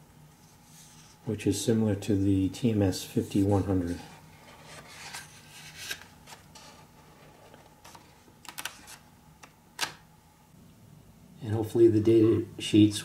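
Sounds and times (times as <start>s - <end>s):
paper pages being flipped: 3.9s - 10.0s.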